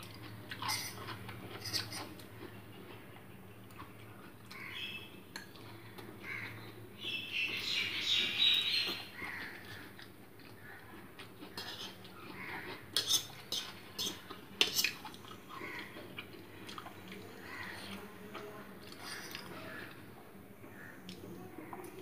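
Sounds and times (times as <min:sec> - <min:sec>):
soft chewing: 0:00.0 - 0:06.9, 0:08.8 - 0:22.0
fork clinking and scraping on plate: 0:00.5 - 0:02.2, 0:11.5 - 0:12.0, 0:12.9 - 0:15.1.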